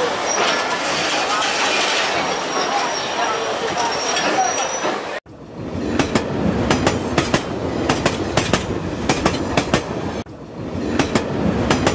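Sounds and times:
train running rumble: 0.1s - 11.9s
train wheels clicking over rail joints: 6.0s - 10.0s.

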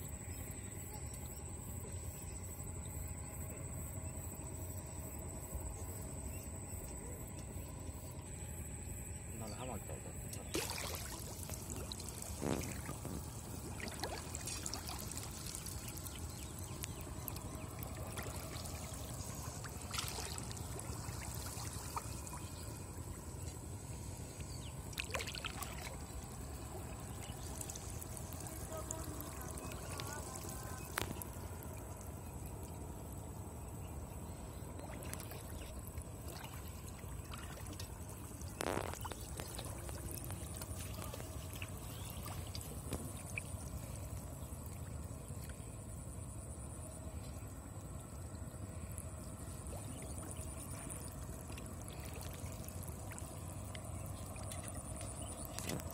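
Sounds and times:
shallow water splashing and trickling: 9.0s - 55.9s
sharp splashes or knocks: 10.5s - 15.3s.

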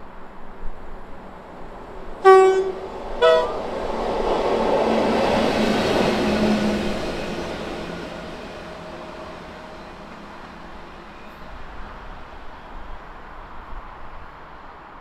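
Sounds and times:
train wheels rumbling: 1.6s - 12.4s
two-tone locomotive horn: 2.2s - 3.9s.

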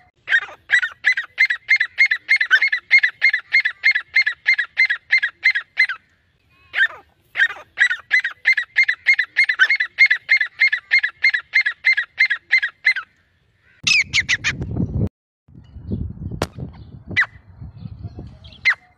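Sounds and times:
bird calling sharp repeated notes: 0.0s - 14.6s.

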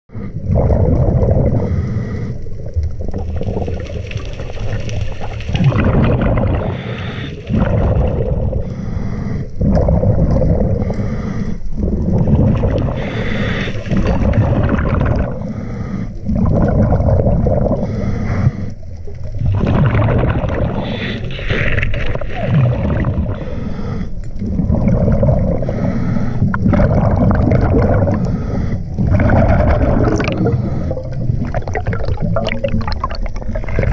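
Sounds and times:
exhaled bubbles gurgling: 0.1s - 33.9s
regulator inhalation hiss: 8.6s - 9.6s, 13.0s - 13.9s.

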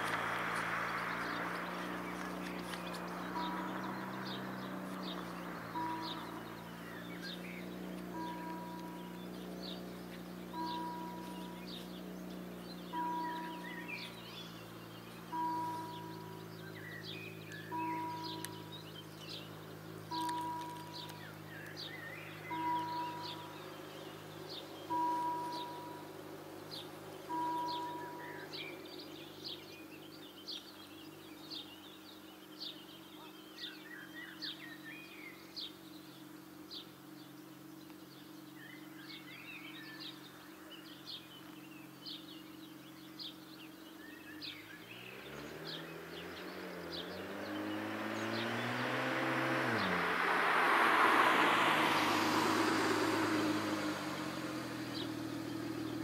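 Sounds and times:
bird chirping: 0.0s - 56.0s
car approaching and braking: 0.0s - 56.0s
level-crossing bell ringing: 5.7s - 9.4s, 10.5s - 11.8s, 13.0s - 14.2s, 15.3s - 16.5s, 17.7s - 18.7s, 20.1s - 21.2s, 22.5s - 23.7s, 24.9s - 26.2s, 27.3s - 28.6s.

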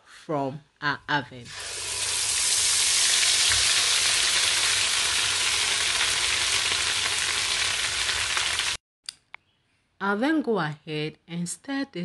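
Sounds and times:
puree sizzling in hot oil: 1.5s - 8.8s.

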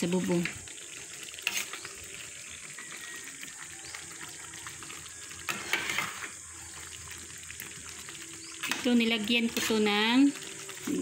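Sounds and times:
sauce bubbling in frying pan: 0.0s - 11.0s
spatula stirring and scraping: 0.3s - 11.0s.

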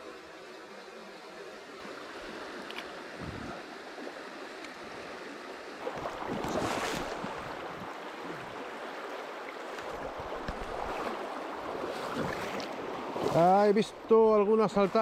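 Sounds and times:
river rushing over stones: 1.8s - 13.7s.

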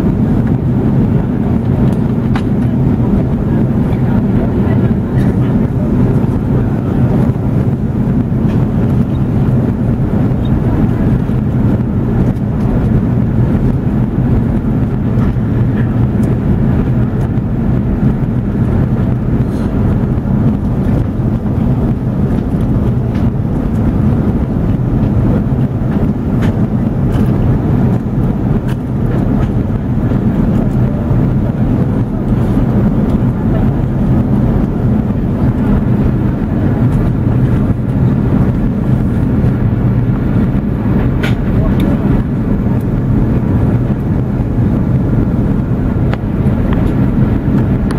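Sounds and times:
airliner cabin engine rumble: 0.0s - 47.9s.

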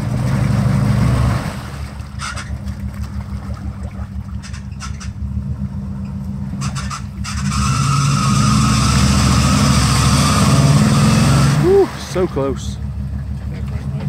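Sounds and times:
engine revving under load: 0.0s - 14.0s
tyres churning mud and water: 0.0s - 14.0s.

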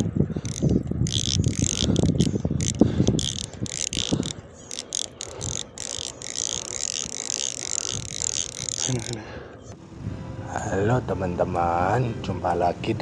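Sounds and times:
rod handling bumps: 0.0s - 9.2s
fishing reel whirring and ticking: 0.0s - 9.3s.

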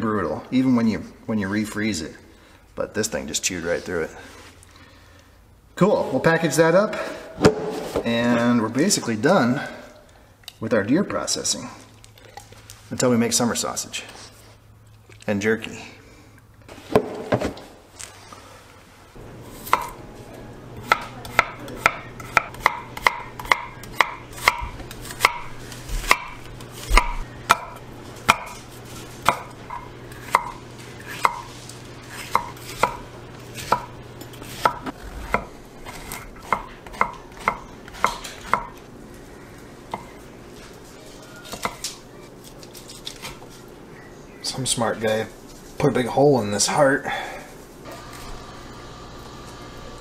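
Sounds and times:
knife chopping on wooden board: 20.8s - 28.6s, 29.2s - 31.5s, 32.2s - 33.0s, 33.6s - 38.7s.

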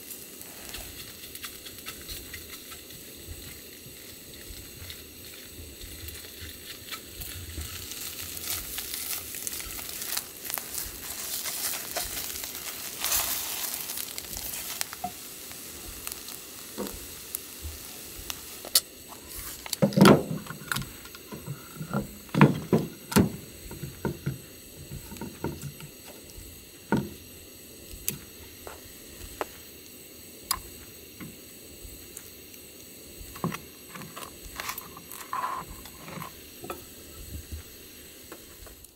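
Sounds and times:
food sizzling in a pan: 0.0s - 38.9s
cooking gear clicking and knocking: 19.6s - 26.0s.

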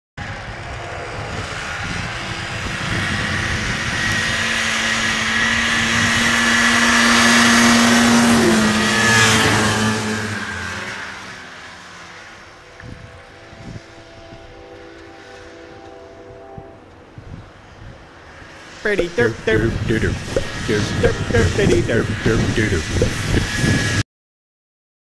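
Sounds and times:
snowmobile engines passing: 0.2s - 17.7s.

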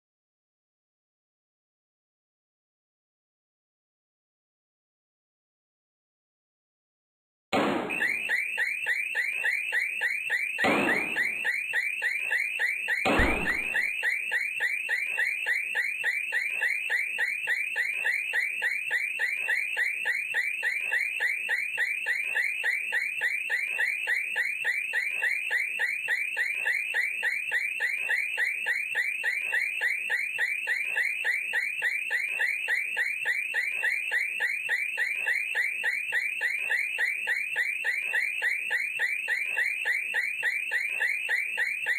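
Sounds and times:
car alarm warbling: 7.6s - 41.9s
hard knocks: 10.6s - 11.3s, 13.1s - 13.8s.

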